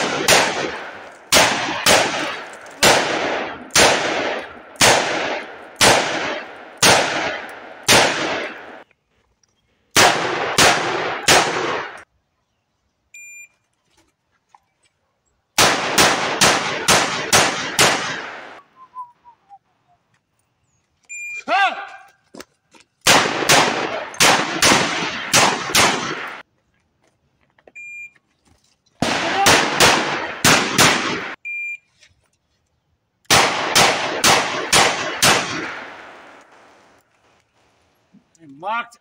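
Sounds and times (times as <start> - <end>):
revolver gunshots echoing: 0.0 - 8.8, 10.0 - 12.0, 15.6 - 18.6, 23.1 - 26.4, 29.0 - 31.4, 33.3 - 36.8.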